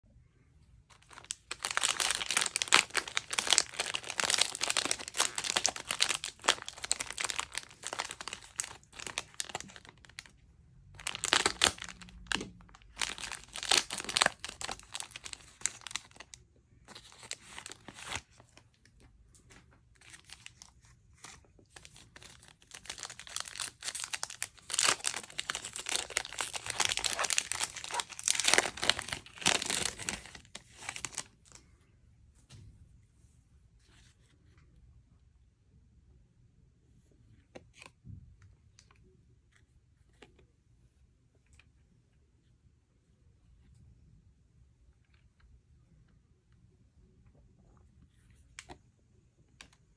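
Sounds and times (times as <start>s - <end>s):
plastic wrappers crinkling: 0.9s - 18.7s, 19.3s - 31.6s.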